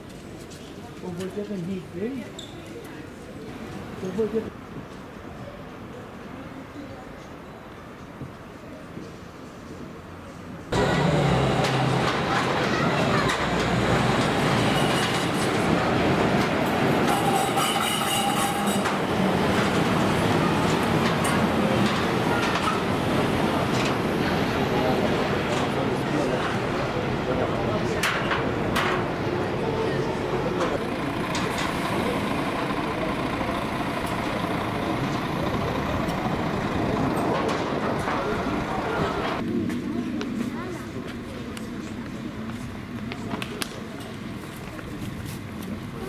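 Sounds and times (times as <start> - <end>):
railway cars rumbling on track: 7.8 - 46.0
wheels clattering clicks: 11.6 - 24.1, 30.6 - 39.4
high wheel squeal: 14.0 - 15.6, 17.0 - 19.3.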